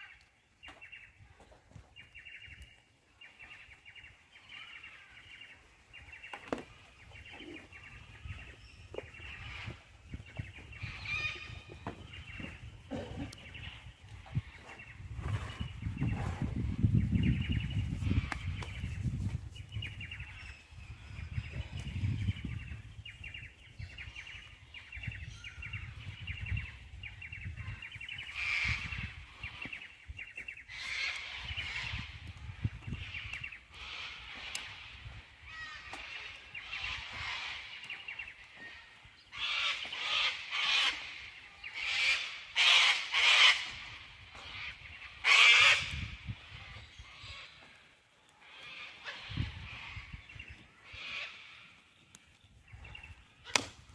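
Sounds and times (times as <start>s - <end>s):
birds honking calls: 3.5s - 16.4s.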